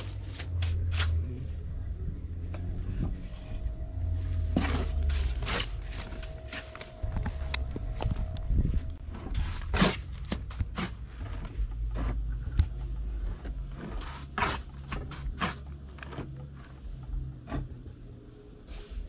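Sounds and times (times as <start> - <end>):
low steady hum: 0.0 - 19.0
tools scraping on mortar: 9.0 - 16.8.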